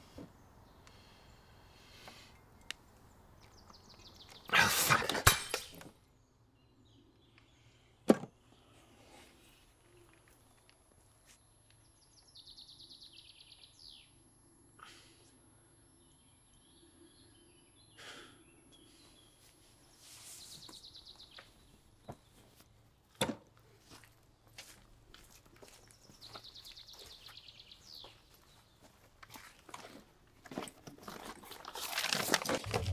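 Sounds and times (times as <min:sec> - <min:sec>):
rustling: 0:30.6 - 0:32.9.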